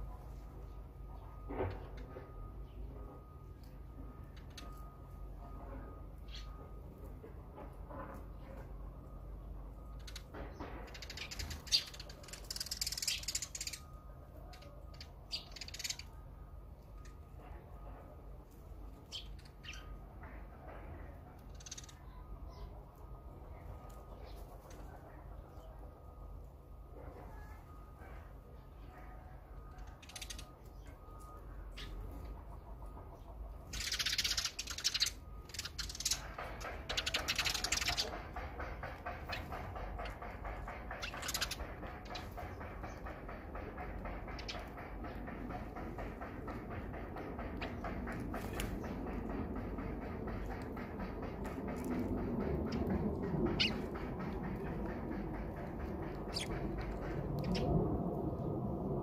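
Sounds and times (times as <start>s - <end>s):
sparrows chirping: 0.0s - 7.2s, 8.2s - 17.8s, 18.6s - 26.0s, 28.6s - 57.7s
sparrows chattering harshly: 9.9s - 16.2s, 19.0s - 20.1s, 21.4s - 22.8s, 29.8s - 32.4s, 33.2s - 57.7s
bird rasping calls: 52.4s - 57.6s.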